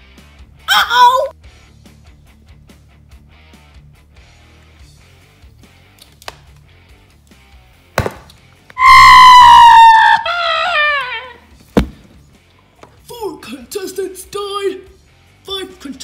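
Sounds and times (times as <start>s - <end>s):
loud high falling cry: 0.7s - 1.3s, 8.8s - 11.4s.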